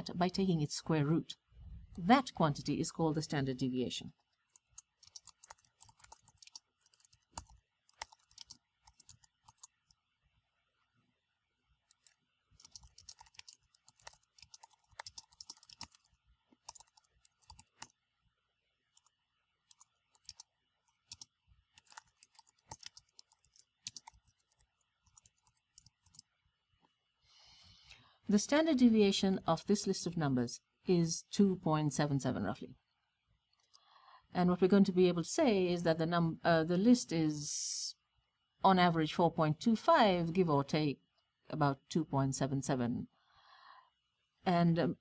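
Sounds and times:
typing on keyboard: 4.5 - 10.0, 11.9 - 17.9, 19.7 - 26.2.

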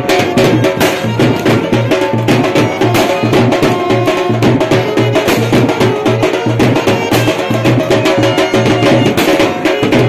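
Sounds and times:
loud music with fast drum beat: 0.0 - 10.0.

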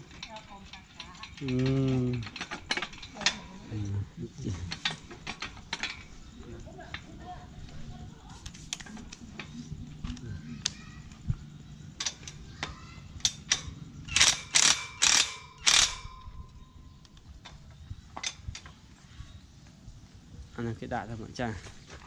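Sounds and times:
metal parts clinking: 0.0 - 7.9, 11.9 - 16.7
impact wrench hammering: 13.3 - 16.2.

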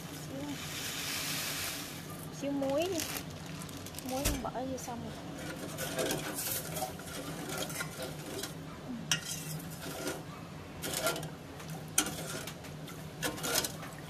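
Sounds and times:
low steady hum: 0.0 - 14.0
ladle scraping metal pot: 5.2 - 14.0.

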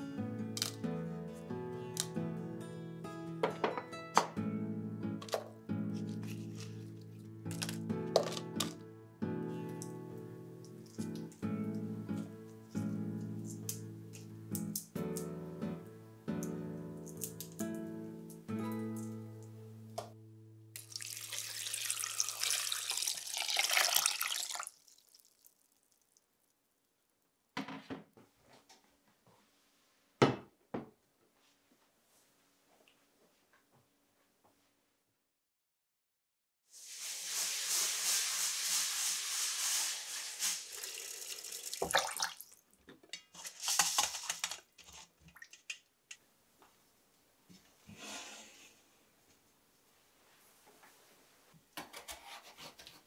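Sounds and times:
water running from tap into sink: 20.8 - 25.4, 36.8 - 42.6.

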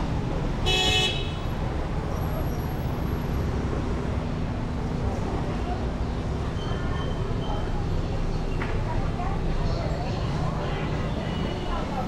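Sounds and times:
street traffic: 0.0 - 12.0
car horn beep: 0.6 - 1.4.

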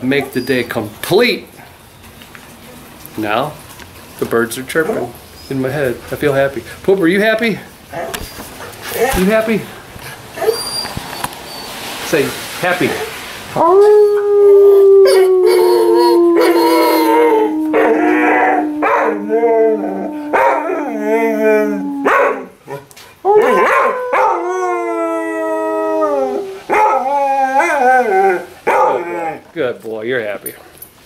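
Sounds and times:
dog yelping: 10.4 - 11.8, 15.0 - 24.4, 26.6 - 29.4
dog howling: 13.6 - 29.5.

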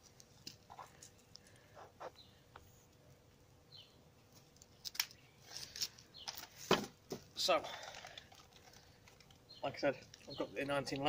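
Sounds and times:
bird chirping: 3.7 - 4.0, 9.2 - 11.0.

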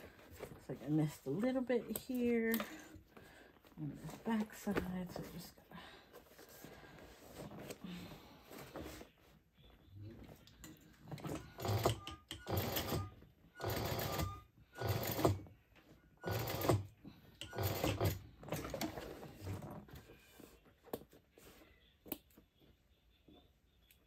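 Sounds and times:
sewing machine stitching: 11.2 - 15.4, 16.2 - 19.0.

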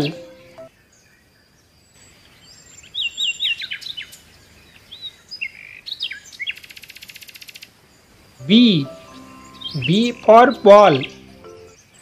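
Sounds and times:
birds chirping: 0.0 - 0.8, 8.0 - 12.0.

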